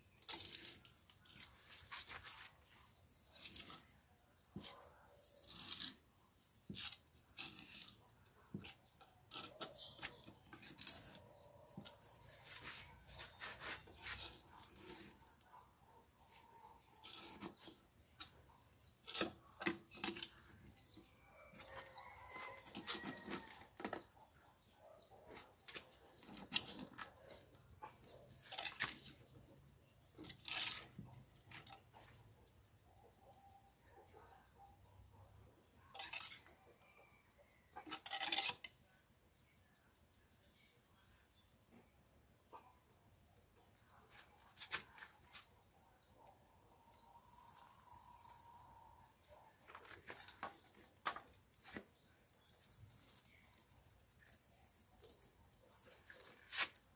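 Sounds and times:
tool scraping through soil: 0.0s - 15.6s, 16.2s - 24.2s, 25.3s - 32.4s, 35.9s - 36.7s, 37.8s - 38.8s, 43.9s - 56.9s.

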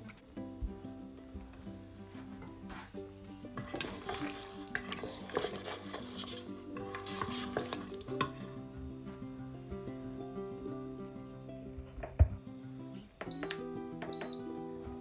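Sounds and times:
background music: 0.0s - 15.0s
spatula scraping in metal pot: 2.7s - 8.5s.

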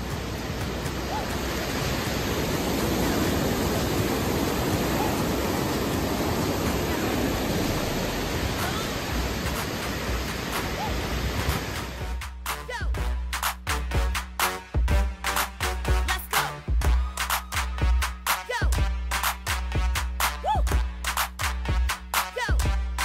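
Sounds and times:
river water rushing over rapids: 0.0s - 12.2s.

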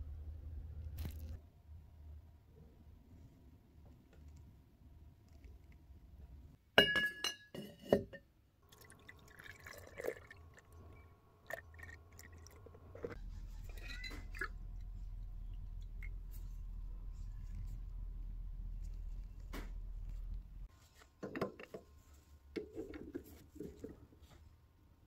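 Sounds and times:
liquid sounds: 8.6s - 20.7s
metal tube clinking against glass jar: 13.6s - 14.7s.

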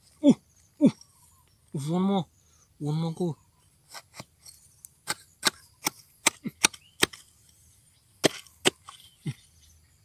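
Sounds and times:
hand tool scraping soil: 3.8s - 9.6s.

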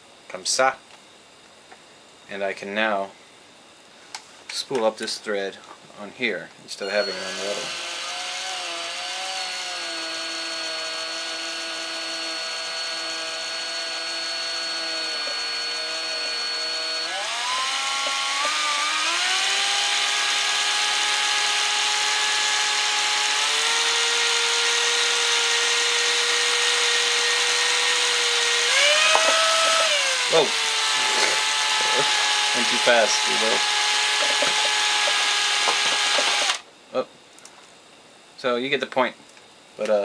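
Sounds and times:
electric drill motor whine: 6.8s - 36.7s.

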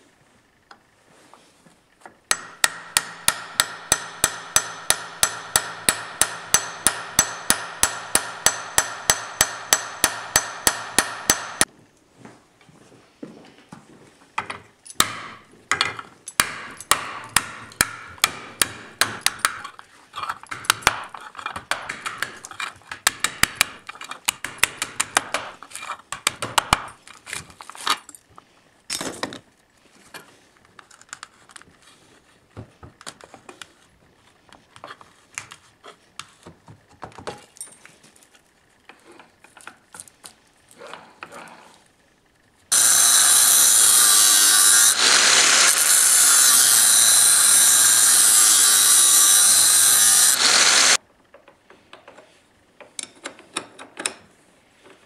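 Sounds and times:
hammer striking grinder disc: 2.3s - 11.7s, 15.0s - 19.8s, 20.5s - 25.6s, 42.7s - 51.0s
clicks and scraping of fragments: 19.6s - 23.1s, 23.8s - 24.4s, 25.6s - 26.3s
angle grinder running: 42.7s - 51.0s.

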